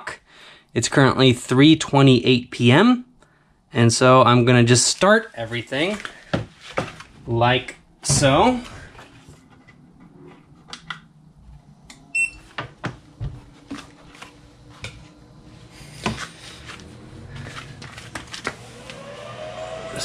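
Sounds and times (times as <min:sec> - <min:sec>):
cooling fan whirring: 0:05.6 - 0:20.0
freezer compressor hum: 0:07.8 - 0:20.0
short beep: 0:12.1 - 0:12.4.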